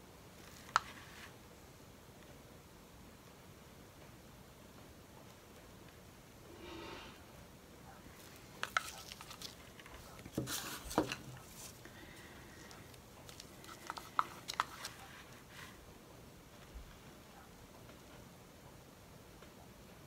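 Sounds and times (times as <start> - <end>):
plastic cups and sticks clicking: 8.6 - 11.3, 12.7 - 15.0.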